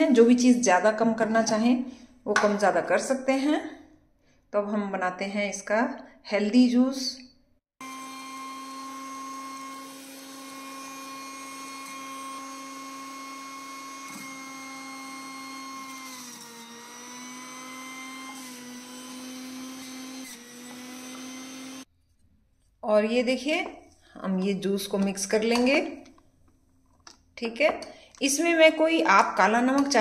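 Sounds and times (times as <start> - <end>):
juicer motor whining: 7.8 - 21.9.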